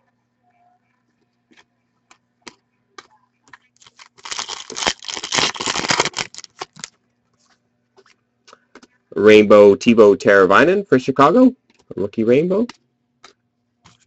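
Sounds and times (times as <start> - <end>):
trading cards rustling: 3.8 - 6.9.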